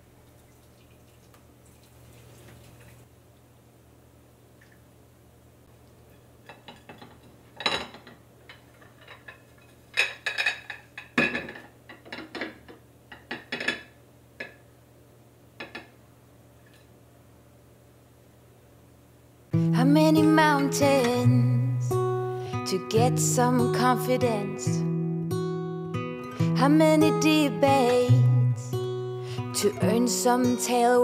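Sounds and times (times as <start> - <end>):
dishes and cutlery clinking: 6.1 - 14.6.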